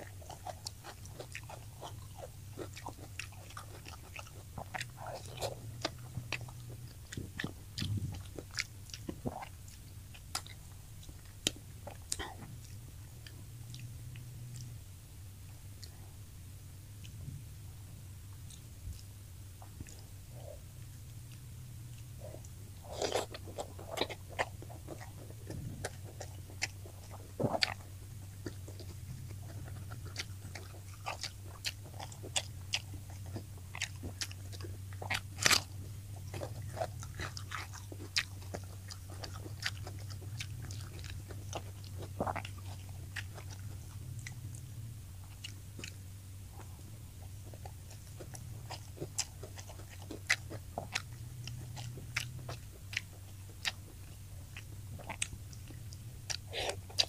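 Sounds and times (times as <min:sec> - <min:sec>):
person chewing crunchy fish: 0:00.0 - 0:14.8, 0:18.3 - 0:57.0
steady low hum: 0:00.0 - 0:57.0
wet mouth clicks: 0:55.1 - 0:57.0.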